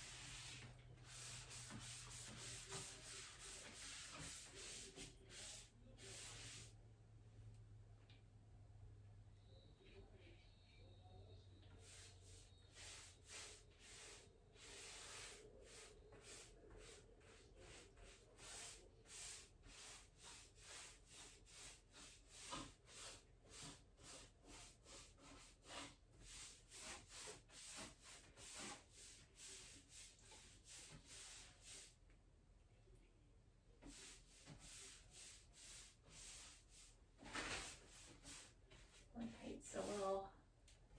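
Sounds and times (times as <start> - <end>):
paint sponge rubbing on wood: 0.0 - 6.8, 11.7 - 32.0, 33.8 - 40.2.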